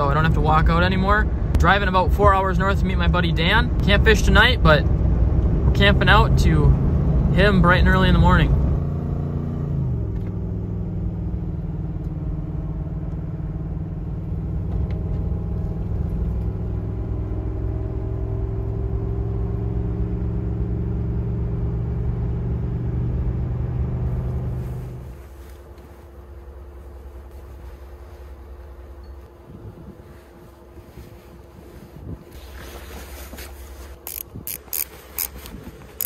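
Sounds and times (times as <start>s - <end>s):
truck engine and road drone: 0.0s - 36.0s
wind-like background: 24.1s - 36.0s.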